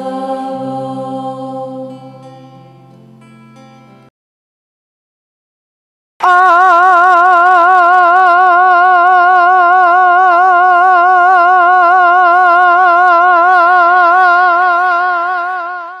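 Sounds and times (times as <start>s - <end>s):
person singing long vibrato note: 0.0s - 2.3s, 6.2s - 16.0s.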